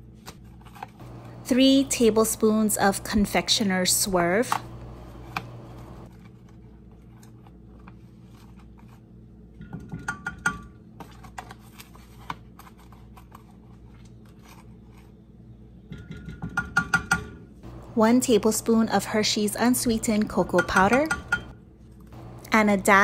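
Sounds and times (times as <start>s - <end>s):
low steady hum: 1.0s - 6.6s, 17.6s - 23.0s.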